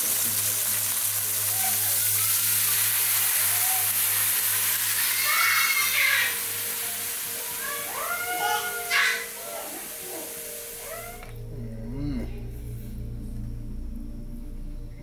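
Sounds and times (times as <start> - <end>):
fish sizzling in oil: 0.0 - 11.2.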